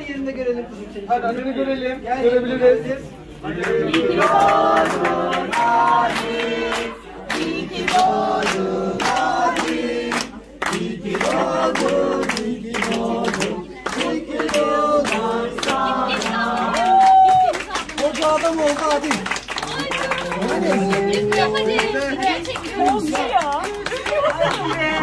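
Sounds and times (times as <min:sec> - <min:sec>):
group singing a birthday song: 0:02.1 - 0:17.7
people clapping: 0:03.5 - 0:25.0.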